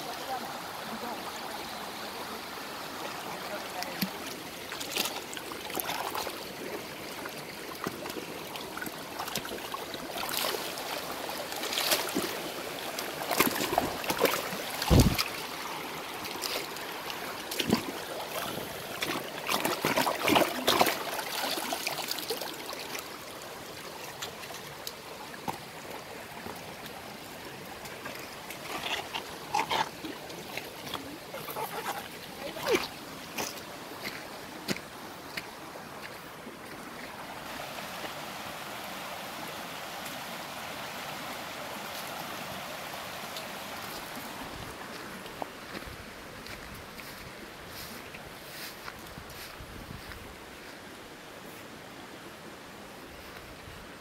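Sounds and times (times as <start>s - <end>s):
stream running over stones: 0.0s - 54.0s
water splashing: 2.9s - 37.6s.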